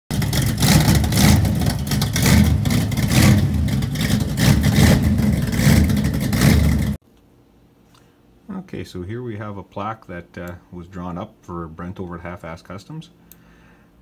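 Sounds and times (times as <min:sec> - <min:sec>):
engine revving loudly: 0:00.1 - 0:07.0.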